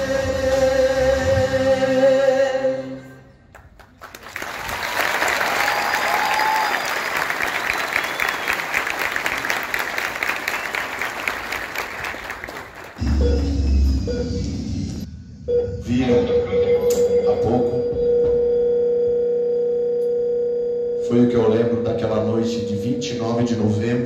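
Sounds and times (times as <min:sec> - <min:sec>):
music with singing: 0:00.0 - 0:03.3
audience applauding: 0:03.5 - 0:13.3
audience cheer: 0:04.4 - 0:11.3.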